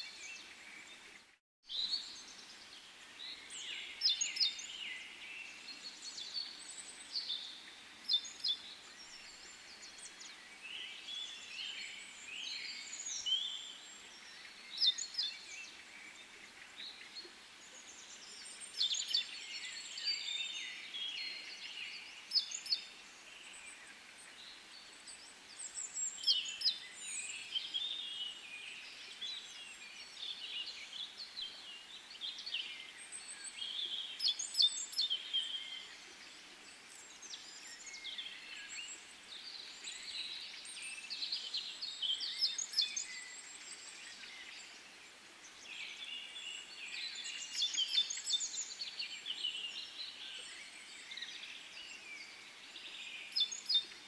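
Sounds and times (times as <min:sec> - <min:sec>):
faint background hiss: 0:00.0 - 0:54.0
songbirds chirping and trilling: 0:00.0 - 0:54.0.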